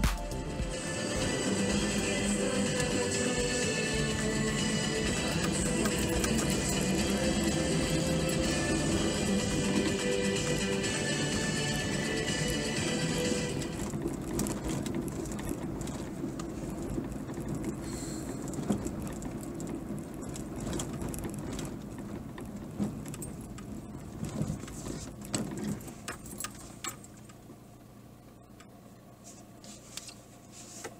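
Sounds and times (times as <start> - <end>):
car engine and tyre rumble: 0.0 - 30.9
small clicks and rattles: 2.7 - 10.1, 13.6 - 27.5.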